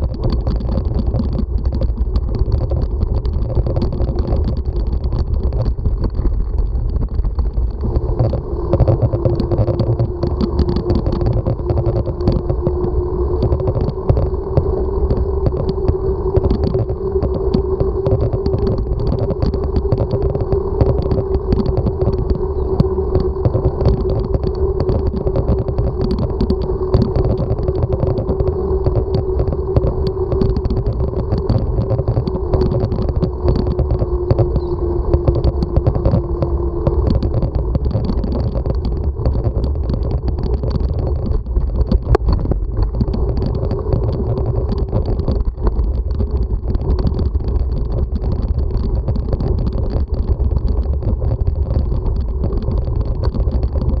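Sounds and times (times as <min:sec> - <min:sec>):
small rattling clicks: 0:00.0 - 0:54.0
steady hum: 0:00.0 - 0:54.0
wind and road rumble: 0:00.0 - 0:54.0.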